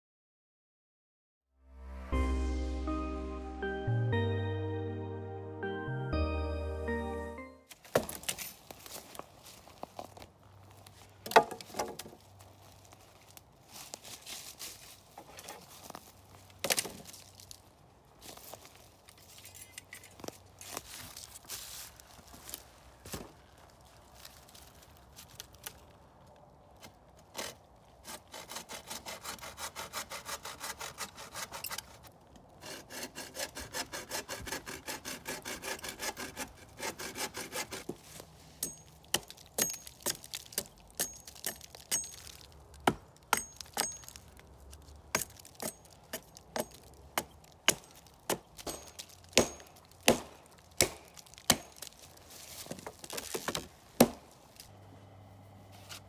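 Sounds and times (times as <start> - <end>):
tomahawk chopping wood: 7.7 - 8.5, 11.2 - 12.2, 38.6 - 44.3, 45.0 - 54.4
hand saw cutting wood: 27.3 - 37.9.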